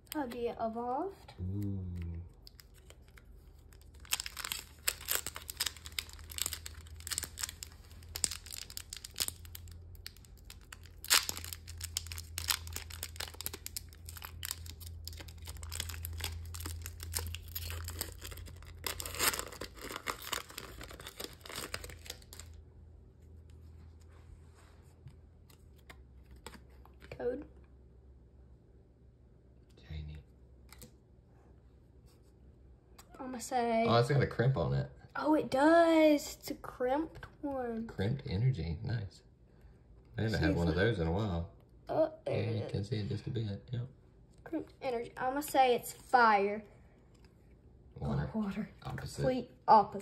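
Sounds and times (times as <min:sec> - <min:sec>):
cards being handled: 0:02.0 - 0:22.6, 0:24.9 - 0:27.1
foil wrapper tearing and crinkling: 0:02.4 - 0:22.6.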